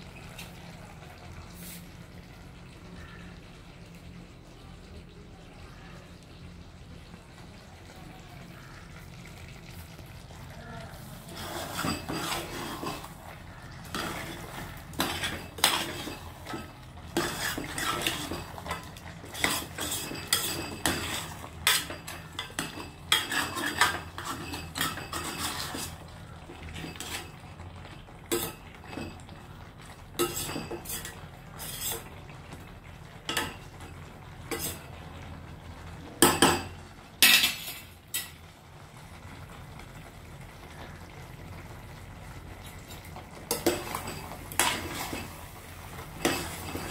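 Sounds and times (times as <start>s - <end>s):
ladle scraping metal pot: 11.0s - 27.5s, 28.2s - 29.4s, 30.2s - 32.7s, 34.4s - 35.0s, 42.6s - 46.9s.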